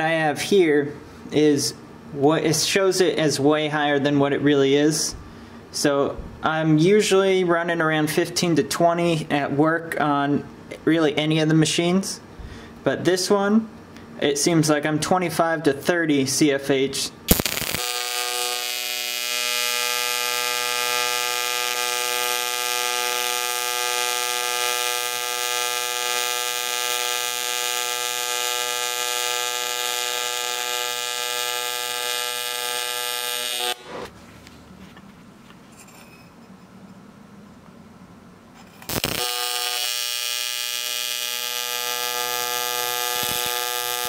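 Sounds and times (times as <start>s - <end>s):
welding arc buzz: 17.3s - 34.1s, 38.7s - 44.0s.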